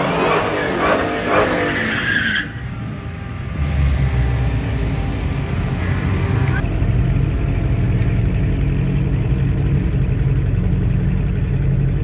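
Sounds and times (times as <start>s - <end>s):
tyres squealing: 0.0s - 2.8s
car engine at high revs: 0.0s - 12.0s
deep engine rumble: 0.0s - 12.0s.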